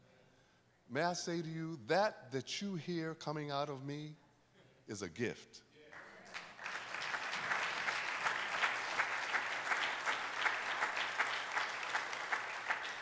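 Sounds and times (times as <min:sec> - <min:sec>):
crowd applauding: 0:06.0 - 0:13.0.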